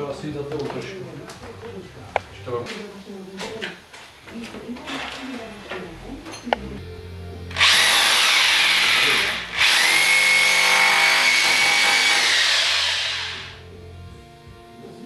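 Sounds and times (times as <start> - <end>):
electric drill whining: 7.5 - 13.6.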